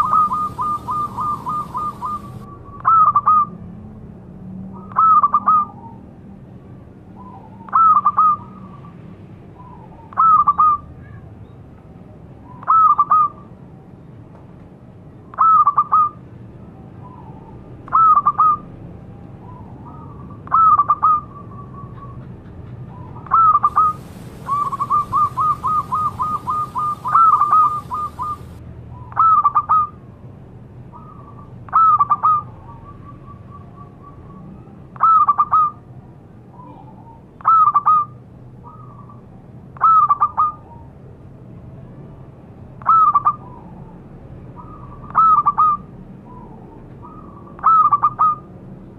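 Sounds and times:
dove cooing: 0:00.0 - 0:03.5, 0:23.2 - 0:28.6.

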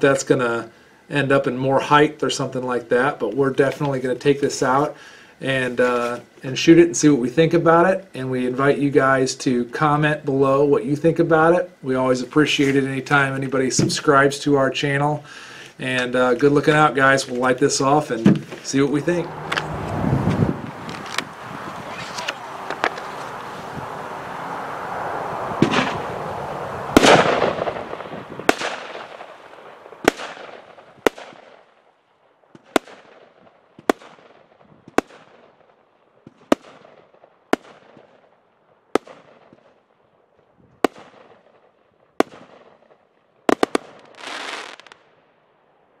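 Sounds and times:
firework bangs: 0:15.3 - 0:31.8, 0:32.5 - 0:38.3, 0:39.0 - 0:39.8, 0:40.8 - 0:45.1
firework hissing: 0:18.4 - 0:31.2, 0:43.5 - 0:45.0.

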